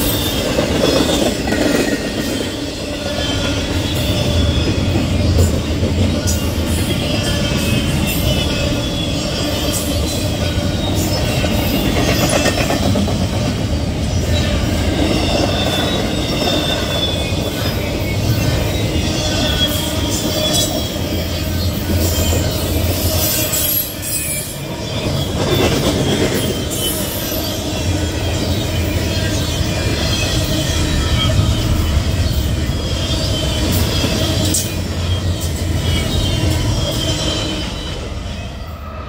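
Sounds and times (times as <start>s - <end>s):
train wheels rumbling on rails: 0.0s - 39.0s
high wheel squeals: 14.1s - 39.0s.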